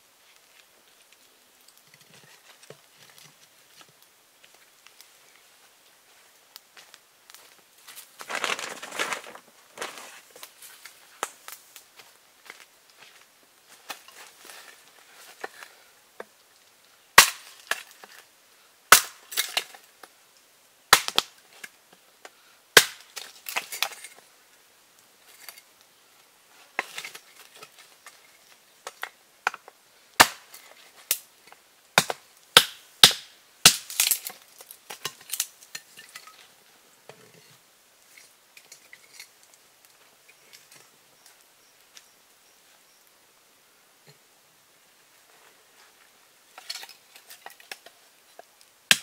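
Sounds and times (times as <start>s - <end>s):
sharp cracks and knocks: 17.2s - 18.0s, 18.9s - 19.7s, 20.9s - 21.4s, 22.8s - 24.1s, 30.2s - 31.2s, 32.0s - 35.8s.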